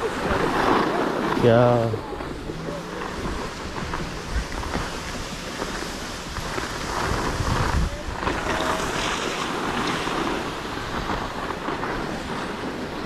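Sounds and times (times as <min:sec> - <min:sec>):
skis scraping over snow: 0:00.0 - 0:13.0
wind buffeting microphone: 0:00.0 - 0:13.0.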